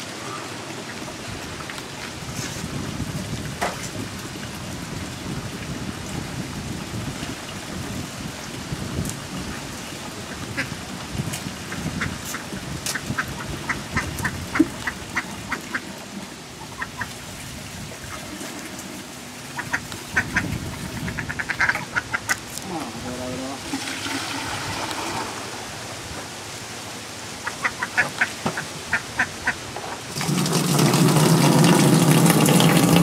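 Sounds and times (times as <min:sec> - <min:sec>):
duck quacking: 0:19.6 - 0:22.4, 0:27.4 - 0:29.6.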